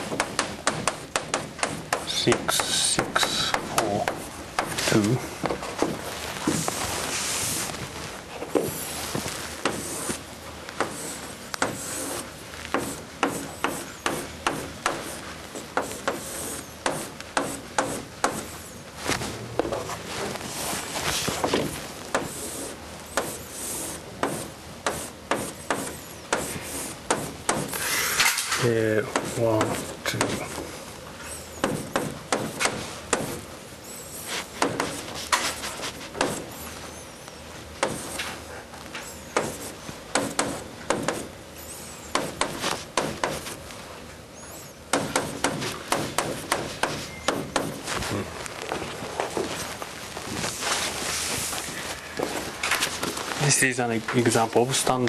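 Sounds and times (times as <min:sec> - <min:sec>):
chalk tapping on blackboard: 0:00.0 - 0:04.9, 0:09.6 - 0:18.6, 0:20.6 - 0:27.9, 0:29.1 - 0:30.5, 0:31.6 - 0:33.4, 0:34.3 - 0:36.5, 0:37.8 - 0:38.3, 0:39.4 - 0:41.3, 0:42.1 - 0:43.6, 0:44.9 - 0:47.9
chalk scraping: 0:08.7 - 0:10.2, 0:10.8 - 0:19.3, 0:19.9 - 0:28.2, 0:34.0 - 0:36.5, 0:39.4 - 0:41.3
chalk squeaks: 0:10.8 - 0:14.4, 0:15.0 - 0:17.6.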